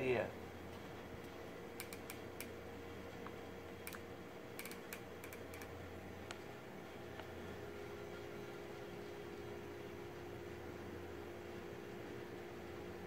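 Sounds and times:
light clicks and ticks: 1.2 - 2.5, 3.2 - 4.0, 4.6 - 6.4.

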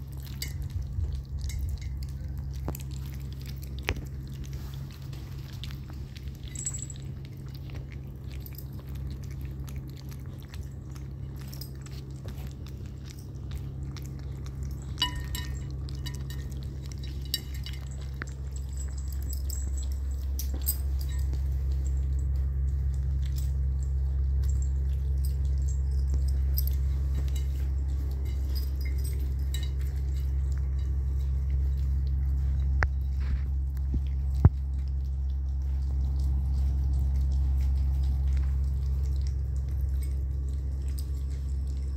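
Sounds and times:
puppies lapping and chewing: 0.0 - 41.9
steady low hum: 0.0 - 41.9
clinks against metal bowl: 0.2 - 0.7, 14.8 - 21.4, 26.0 - 31.0.

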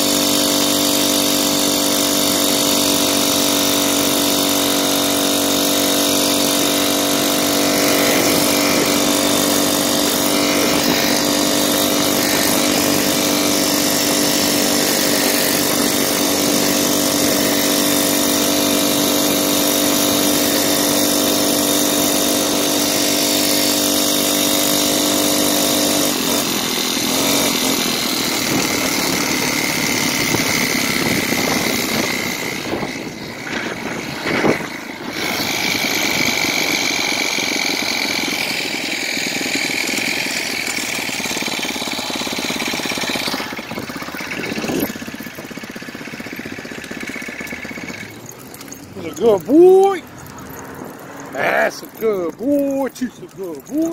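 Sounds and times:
small engine running: 0.0 - 53.9
wind noise: 30.0 - 35.4
road noise: 42.9 - 53.9.

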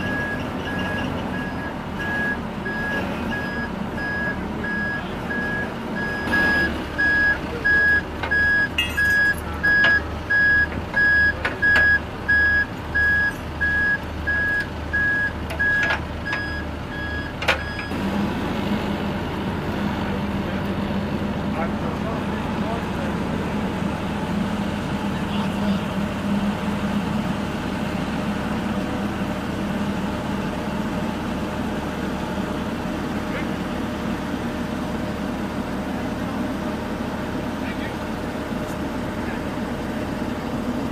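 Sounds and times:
reversing alarm beeping: 0.0 - 18.0
diesel engine running: 0.0 - 40.9.

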